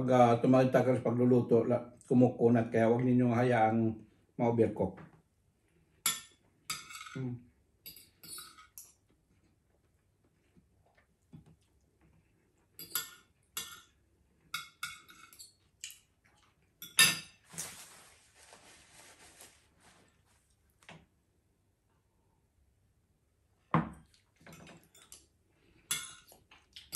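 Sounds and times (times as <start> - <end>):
cutlery scraping a ceramic plate: 6.0 - 7.2, 7.8 - 8.9, 12.8 - 15.6, 16.8 - 17.6
paper napkin rustling: 17.4 - 20.5.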